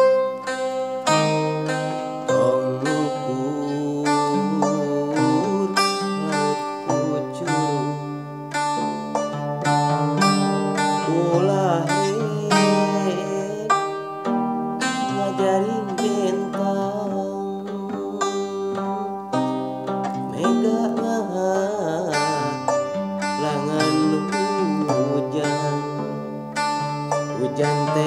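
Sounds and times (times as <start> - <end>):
plucked zither notes: 0.0 - 28.0
man singing: 1.3 - 19.5, 20.1 - 28.0.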